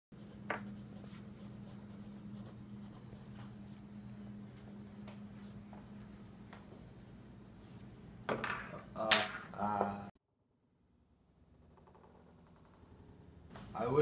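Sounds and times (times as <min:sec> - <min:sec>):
pencil writing on paper: 0:00.2 - 0:05.6
steady low hum: 0:00.2 - 0:14.0.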